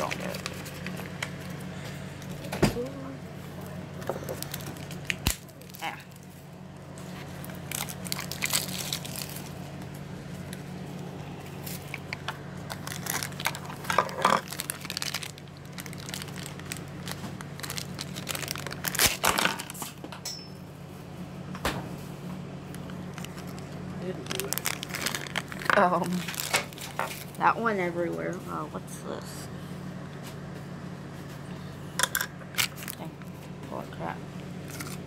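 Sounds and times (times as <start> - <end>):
plastic packaging crinkling and tearing: 0.0 - 2.5, 3.6 - 20.0, 22.7 - 27.5, 32.5 - 33.6, 34.4 - 35.0
low steady hum: 0.0 - 35.0.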